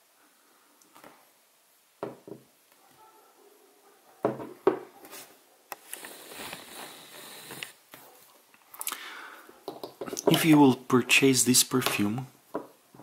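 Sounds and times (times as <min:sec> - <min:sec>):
glass bottle knocking on wood: 0:02.0 - 0:02.4, 0:04.2 - 0:04.8.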